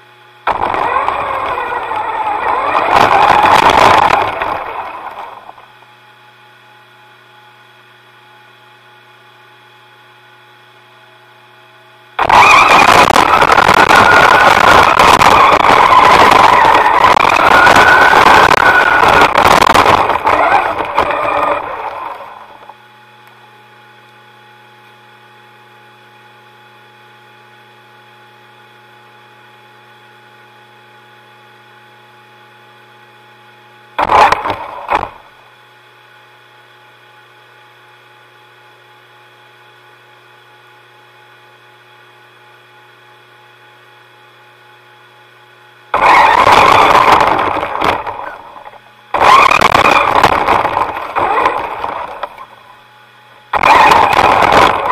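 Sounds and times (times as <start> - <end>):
faint steady whine: 0.0 - 54.9
model motor rushing: 0.5 - 5.6, 12.2 - 22.7, 46.0 - 52.6, 53.5 - 54.9.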